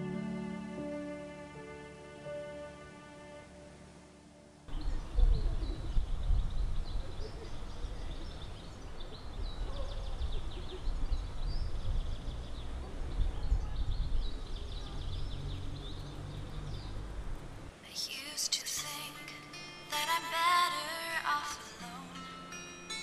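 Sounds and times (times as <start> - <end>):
small birds chirping: 4.7 - 18.3.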